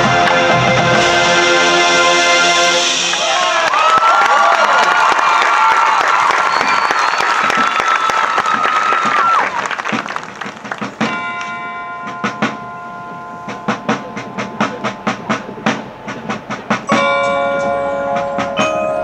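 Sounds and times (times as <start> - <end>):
applause: 3.1 - 11.2
mallet percussion playing: 10.7 - 19.0
ringing bell-like chords: 11.0 - 19.0.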